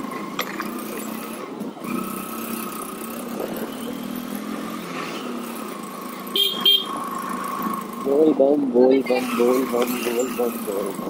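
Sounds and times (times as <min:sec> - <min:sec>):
small motorcycle engine running: 0:00.0 - 0:11.0.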